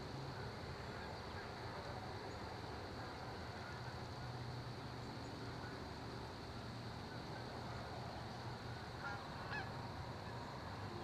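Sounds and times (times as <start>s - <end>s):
goose honk: 9.0s - 9.7s.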